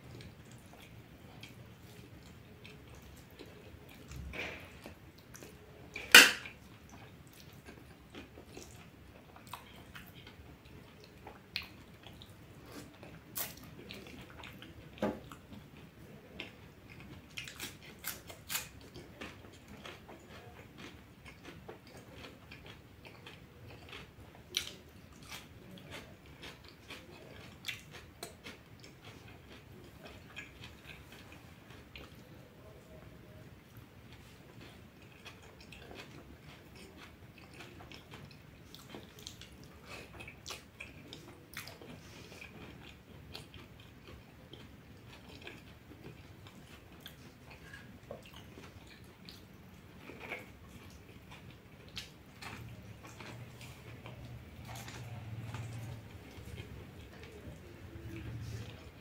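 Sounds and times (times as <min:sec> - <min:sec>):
person chewing food: 0:00.0 - 0:59.0
cutlery clinking on steel plate: 0:06.1 - 0:06.5.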